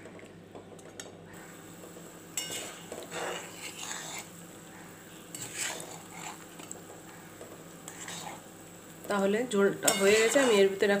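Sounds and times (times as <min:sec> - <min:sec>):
metal spatula scraping a pan: 0:02.4 - 0:04.3, 0:05.3 - 0:06.4, 0:07.9 - 0:08.4, 0:09.8 - 0:10.8.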